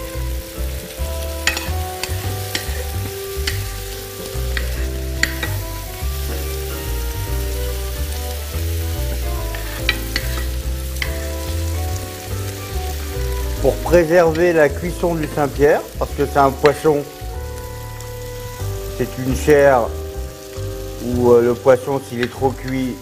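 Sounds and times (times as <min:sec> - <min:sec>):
food sizzling in a frying pan: 0:00.0 - 0:23.0
utensil tapping in a pan: 0:01.4 - 0:05.6, 0:08.6 - 0:12.2, 0:13.1 - 0:17.1, 0:21.9 - 0:23.0.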